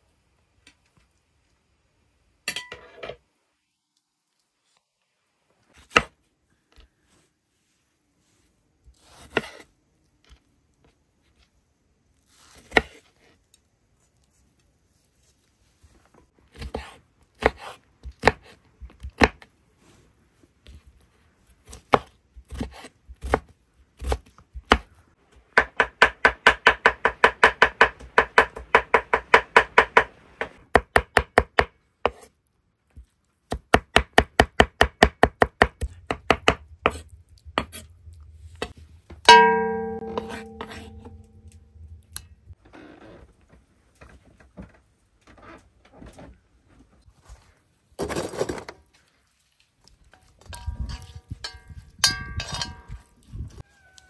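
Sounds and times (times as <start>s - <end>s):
knife chopping on wooden board: 39.3s - 41.2s
metallic clang ringing: 39.3s - 41.8s.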